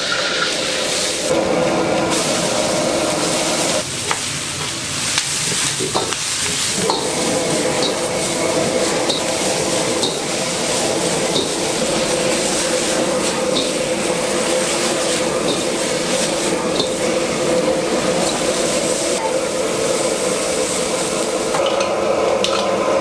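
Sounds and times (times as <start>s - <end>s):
vegetables sizzling in a wok: 0.0s - 21.7s
gas burner humming: 0.0s - 23.0s
metal ladle scraping a wok: 5.4s - 19.2s.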